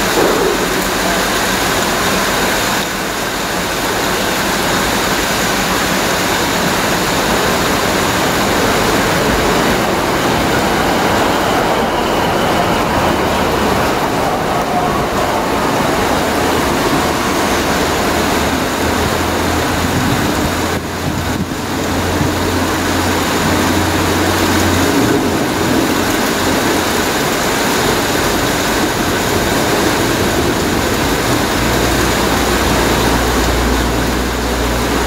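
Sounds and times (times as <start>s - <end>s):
train diesel engines droning: 0.0s - 35.0s.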